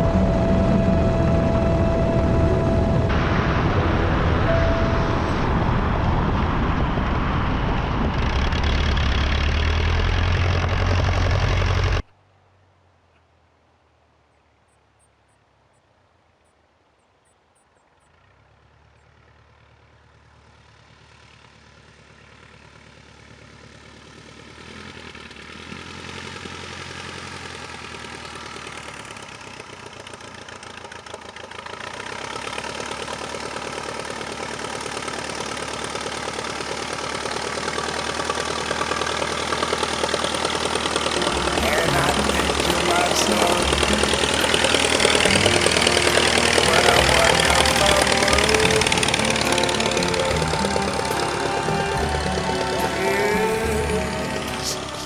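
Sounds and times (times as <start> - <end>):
biplane engine taxiing: 0.0 - 12.1, 18.1 - 55.0.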